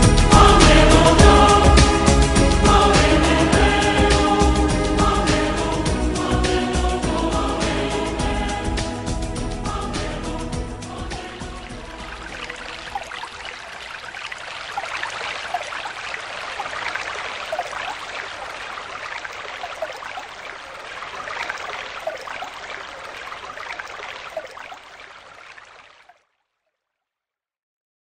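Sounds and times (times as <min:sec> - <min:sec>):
stream water bubbling: 0:10.8 - 0:26.6.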